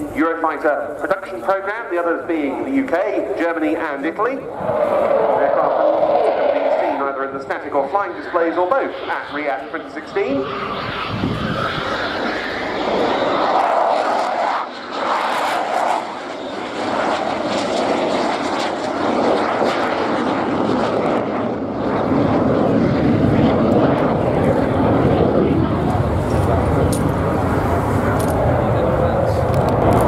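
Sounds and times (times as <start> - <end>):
jet engine noise: 0.0 - 30.0.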